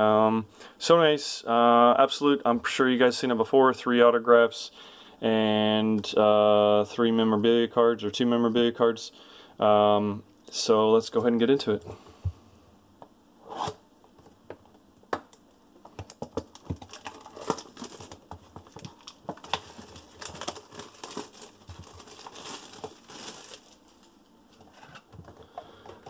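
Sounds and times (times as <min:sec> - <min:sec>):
plastic crinkling: 0:15.8 - 0:25.4
blade slitting plastic wrap: 0:16.5 - 0:24.0.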